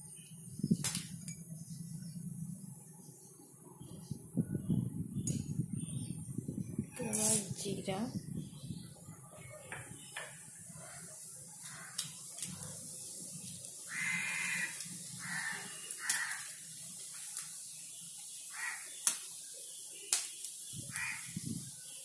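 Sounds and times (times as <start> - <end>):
seeds sizzling in hot oil: 10.0 - 22.0.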